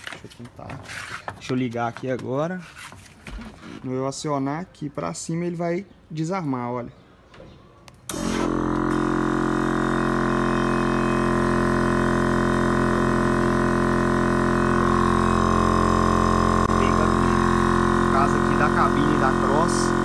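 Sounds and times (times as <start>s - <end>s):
air compressor droning: 8.0s - 20.0s.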